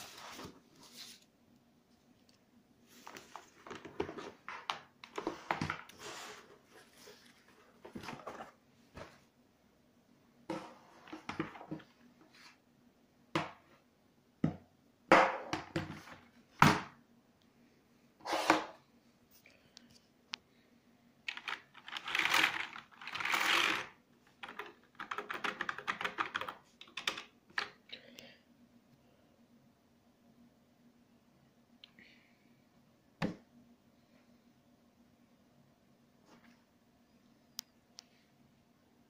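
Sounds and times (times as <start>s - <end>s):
plastic keyboard knocks and clatter: 10.5s - 11.9s.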